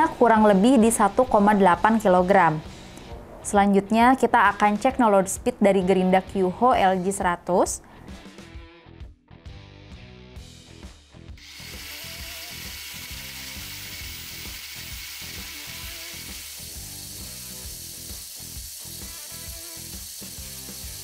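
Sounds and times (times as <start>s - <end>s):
angle grinder running: 11.4s - 21.0s.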